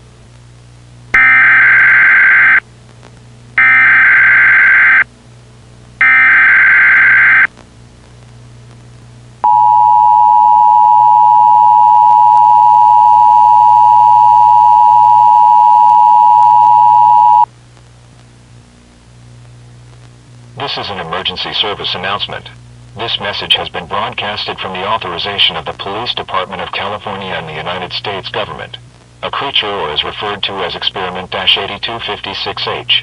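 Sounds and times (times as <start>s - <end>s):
data tone bursts: 1.2s - 2.6s, 3.6s - 5.0s, 6.0s - 7.5s, 9.4s - 17.5s
two-tone attention signal: 9.4s - 17.5s.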